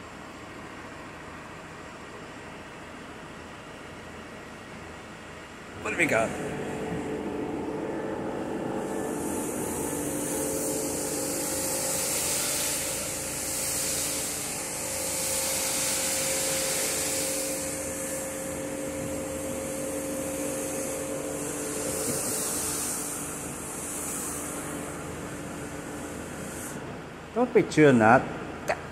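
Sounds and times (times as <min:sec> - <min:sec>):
machine motor hum: 0:02.1 - 0:27.2
loud hiss: 0:08.8 - 0:26.8.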